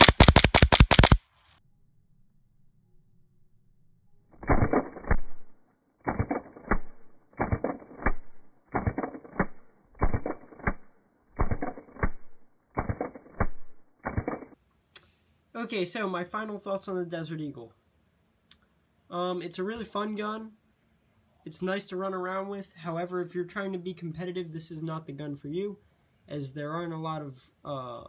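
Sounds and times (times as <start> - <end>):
muffled airsoft pistol shots: 0.0 - 1.2, 6.1 - 14.5.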